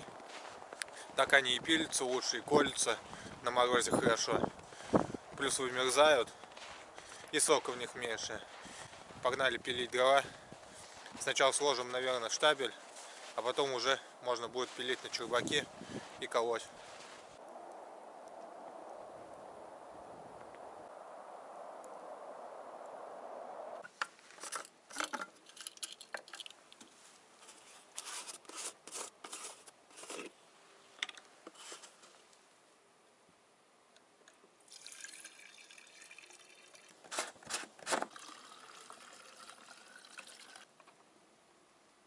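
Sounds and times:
faint rising tone: 17.4s - 23.8s
plastic bottles being handled: 23.8s - 30.4s, 34.7s - 41.0s
liquid pouring into container: 34.6s - 37.0s, 38.0s - 40.7s.

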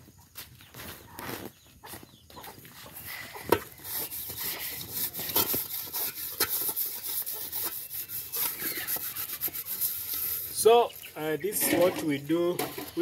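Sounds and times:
pot scrubbed with soil: 3.1s - 13.0s.

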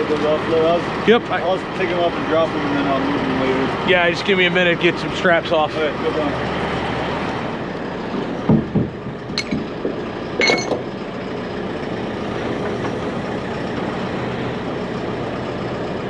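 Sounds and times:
engine idling: 0.0s - 16.0s
metal clank: 8.6s - 10.9s.

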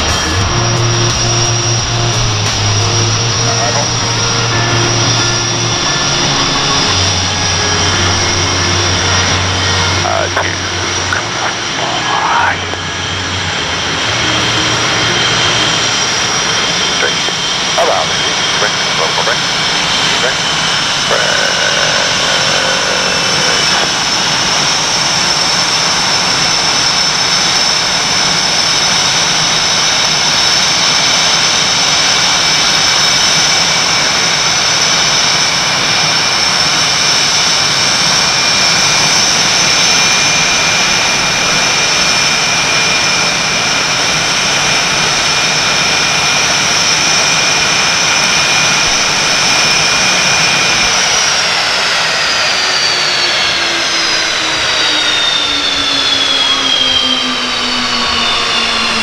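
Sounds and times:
jet engines idling: 0.0s - 59.0s.

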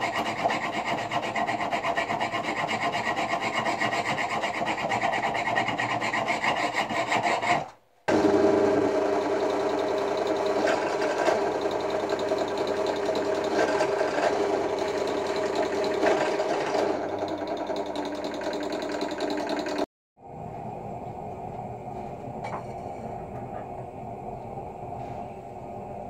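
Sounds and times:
drill press drilling metal: 7.4s - 19.8s.

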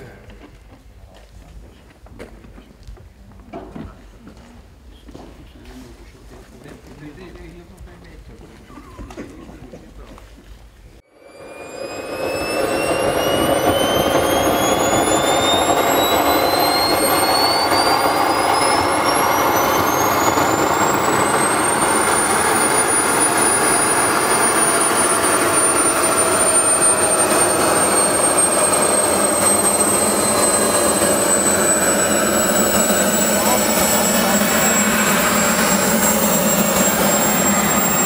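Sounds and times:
turbine whine rising in pitch: 11.0s - 38.0s
jet turbine rushing: 11.1s - 38.0s.

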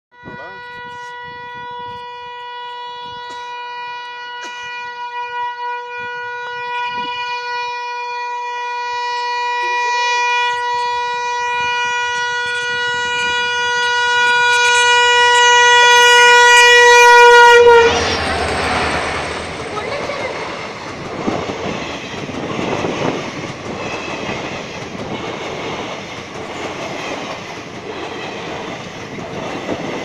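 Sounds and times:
locomotive horn: 0.1s - 20.8s.

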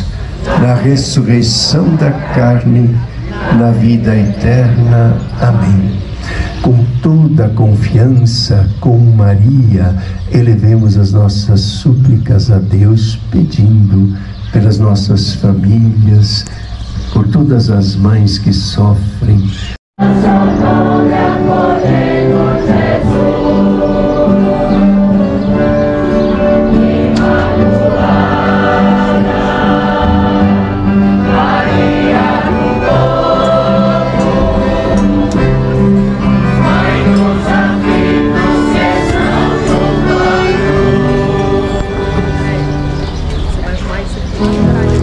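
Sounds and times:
choir singing a hymn: 0.0s - 6.8s, 20.0s - 43.2s
instrumental accompaniment: 20.0s - 45.0s.

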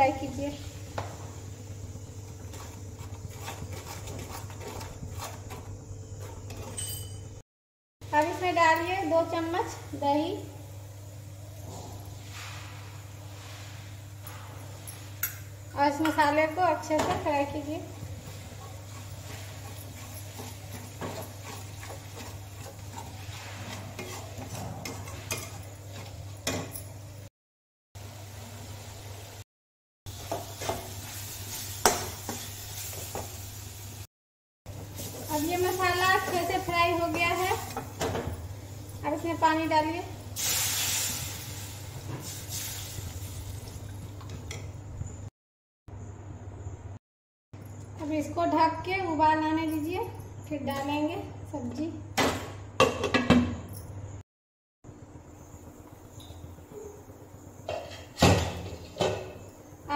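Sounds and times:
paste sizzling: 1.8s - 5.9s, 16.6s - 26.3s, 40.1s - 43.9s
metal spoon scraping pan: 2.5s - 7.2s, 18.2s - 26.7s
water splashing and hissing in hot pan: 9.6s - 15.2s, 18.0s - 24.4s, 28.0s - 29.5s, 30.1s - 34.1s, 34.7s - 39.1s, 39.8s - 44.2s.

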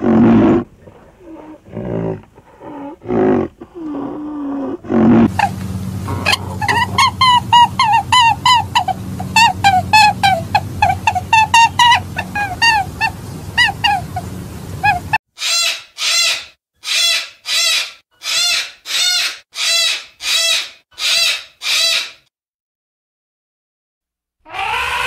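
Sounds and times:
low hum: 5.2s - 15.2s
cockatoo screeching: 5.2s - 22.3s, 24.5s - 25.0s.

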